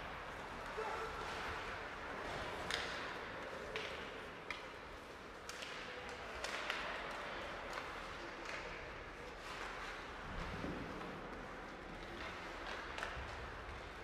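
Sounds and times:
hockey sticks and puck clacking: 0.1s - 14.0s.

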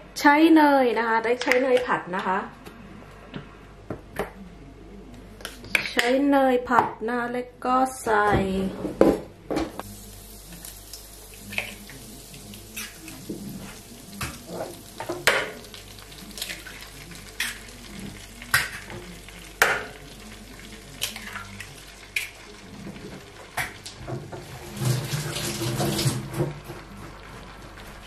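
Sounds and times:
butter sizzling in frying pan: 9.8s - 26.3s.

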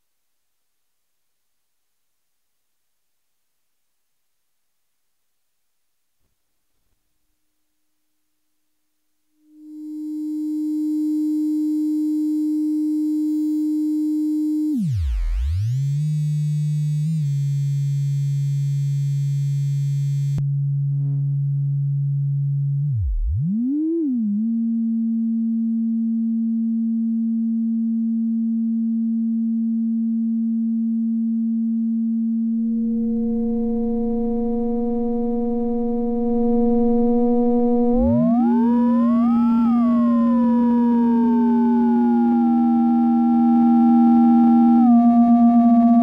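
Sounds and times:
synthesizer tone with pitch swoops: 22.6s - 26.1s, 32.5s - 46.0s.

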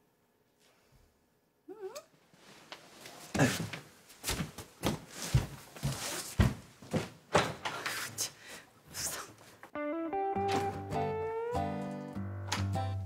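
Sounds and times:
heavy footsteps on floor: 3.3s - 7.7s.

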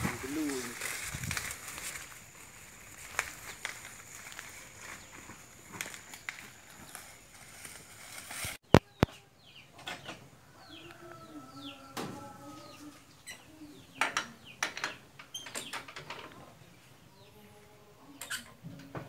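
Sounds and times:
birds chirping: 8.7s - 18.6s.

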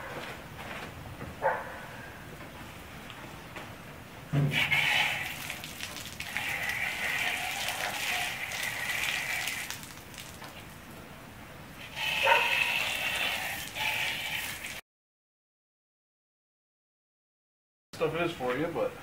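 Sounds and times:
liquid trickling and splashing: 4.5s - 10.9s, 11.8s - 14.8s.

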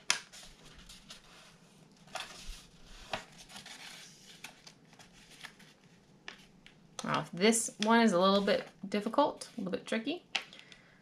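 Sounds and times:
paper rustling and scraping: 0.2s - 6.0s.

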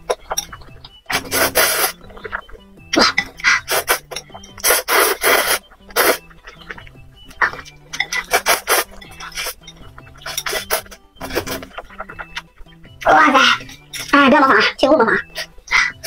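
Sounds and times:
quiet background music: 0.0s - 16.0s
person slurping noodles: 1.2s - 2.4s, 3.0s - 6.8s, 7.4s - 9.6s, 10.2s - 11.8s.

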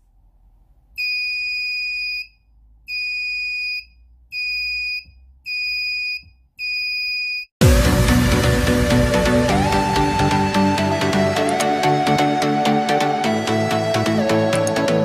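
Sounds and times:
background music: 7.6s - 15.0s.

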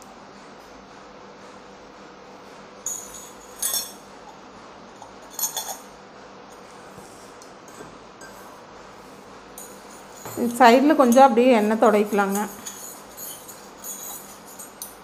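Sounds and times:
steel pieces clinking: 9.6s - 15.0s.

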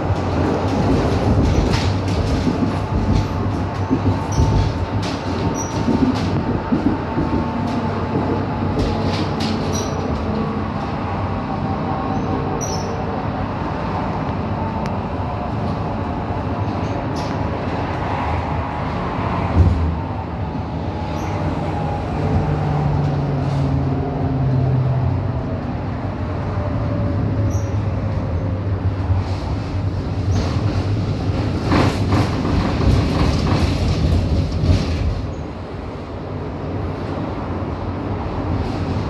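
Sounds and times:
wheels clacking over rail joints: 0.0s - 11.0s, 27.4s - 35.6s
tram rumble: 0.0s - 39.0s.

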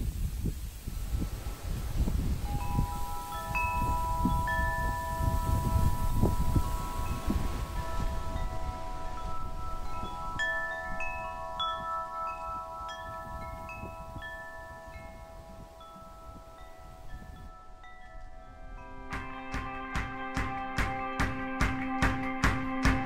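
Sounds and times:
wind buffeting microphone: 0.0s - 21.5s
wind chimes ringing: 1.6s - 20.0s.

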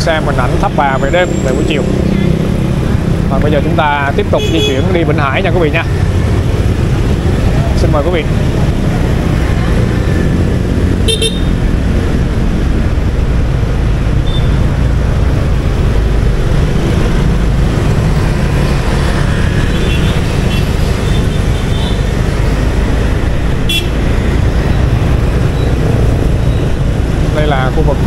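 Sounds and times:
low rumble of traffic: 0.0s - 28.0s
horn beeps: 11.0s - 11.6s, 23.7s - 26.8s.

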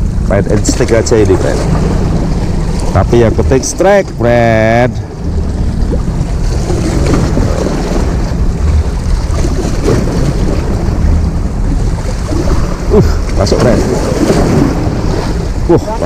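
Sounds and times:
waves washing against rocks: 0.0s - 16.0s
wind buffeting microphone: 0.0s - 16.0s.

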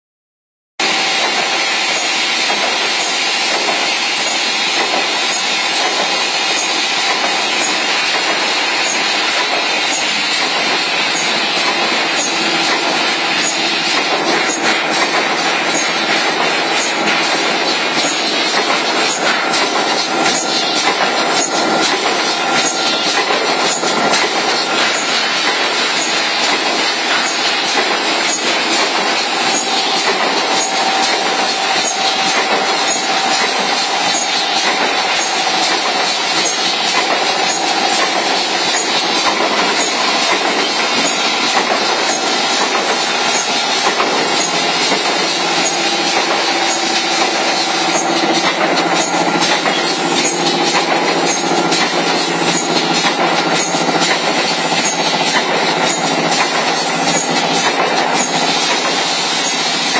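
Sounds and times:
machine clattering rapidly: 0.8s - 59.9s.

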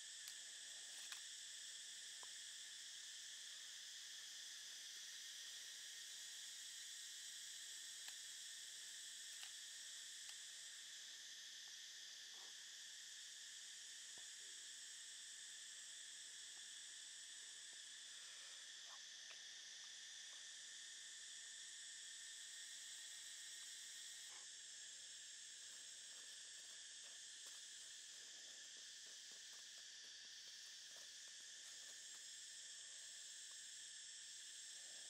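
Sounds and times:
insects chorus in forest: 0.0s - 35.0s.

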